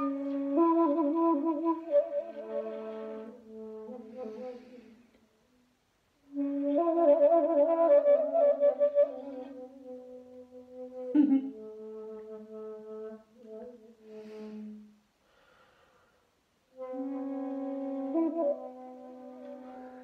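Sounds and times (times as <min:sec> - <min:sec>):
bamboo flute long notes: 0:00.0 - 0:05.3, 0:06.2 - 0:15.0, 0:16.7 - 0:20.0
breathy rush of air: 0:14.1 - 0:16.4.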